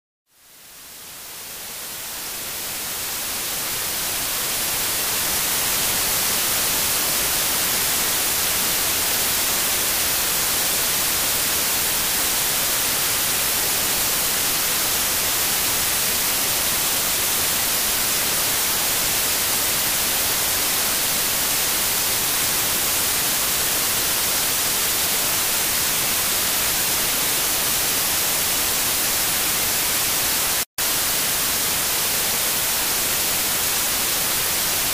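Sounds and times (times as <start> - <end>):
static hiss: 0.3 - 34.9.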